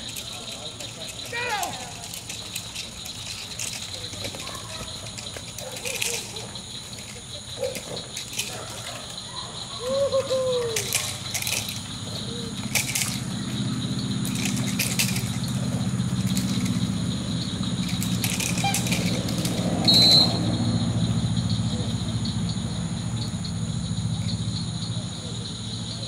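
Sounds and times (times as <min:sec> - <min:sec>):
high insect-like tones: 0:00.0 - 0:26.0
sharp cracks: 0:10.0 - 0:20.6
short high whistle blast: 0:19.8 - 0:20.5.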